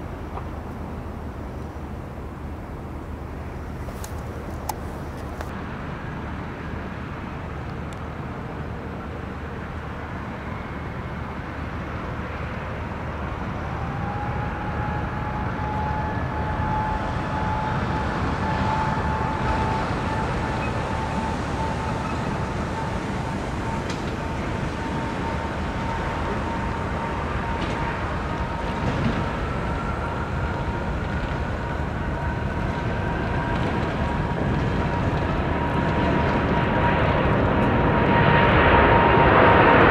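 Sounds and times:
jet engines rushing: 0:00.0 - 0:39.9
thin engine whine rising: 0:13.2 - 0:39.9.

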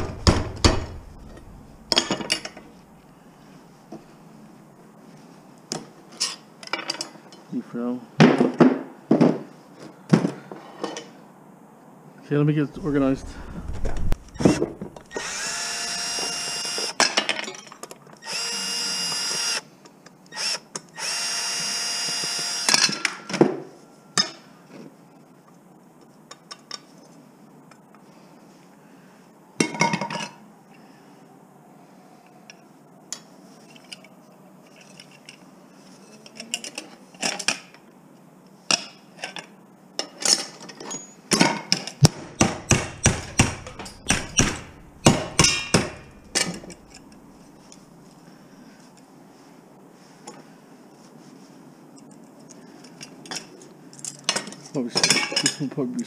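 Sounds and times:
metal scrap clanking: 0:00.0 - 0:02.7, 0:43.0 - 0:47.0
power drill running: 0:14.3 - 0:16.9, 0:18.2 - 0:19.6, 0:20.4 - 0:22.7.

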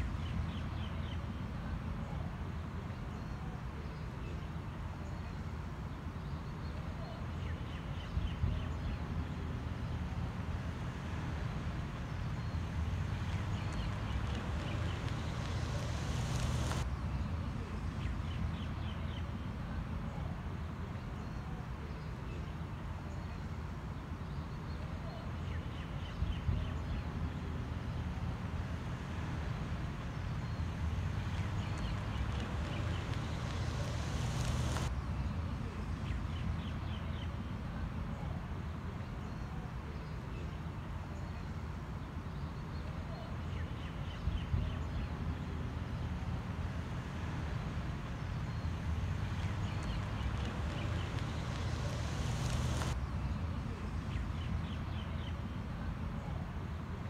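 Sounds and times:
low outdoor rumble: 0:00.0 - 0:41.5, 0:43.1 - 0:57.0
small birds chirping: 0:06.3 - 0:19.4, 0:27.8 - 0:37.4, 0:47.1 - 0:55.5
steady low rumble: 0:09.3 - 0:19.5, 0:27.9 - 0:35.8, 0:46.4 - 0:54.6.

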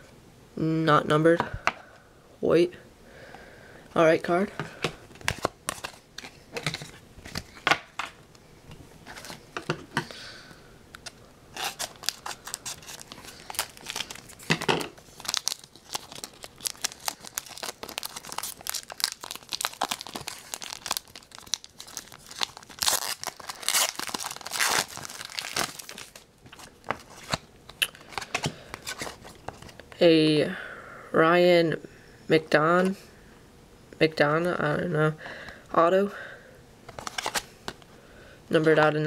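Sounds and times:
wrapper crinkling and tearing: 0:05.2 - 0:07.7, 0:11.0 - 0:27.4, 0:36.9 - 0:37.5.

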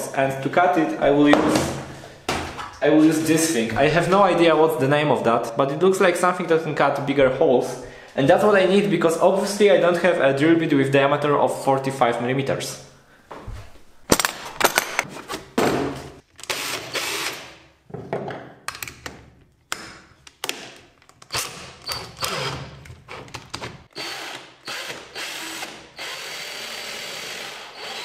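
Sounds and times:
cordless drill running: 0:16.5 - 0:17.5, 0:21.3 - 0:22.6, 0:23.9 - 0:28.0.

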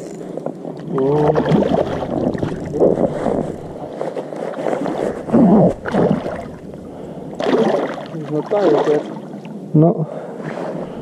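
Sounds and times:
fish splashing in water: 0:00.8 - 0:09.5.

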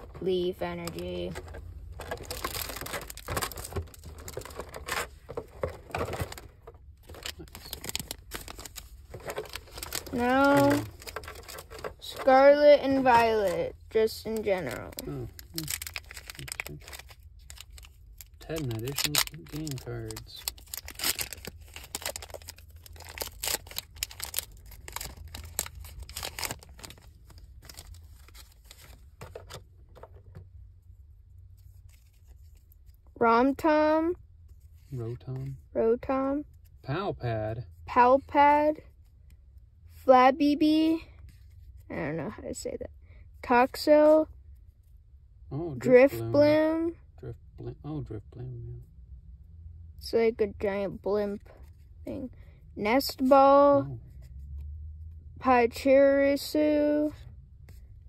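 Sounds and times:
trading cards handled: 0:00.8 - 0:30.5
foil wrappers rustling: 0:02.0 - 0:06.4, 0:07.0 - 0:29.0.

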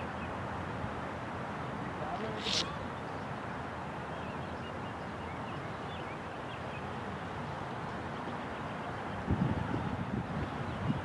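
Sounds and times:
steady background hiss: 0:00.0 - 0:11.0
wind buffeting microphone: 0:09.2 - 0:11.0.

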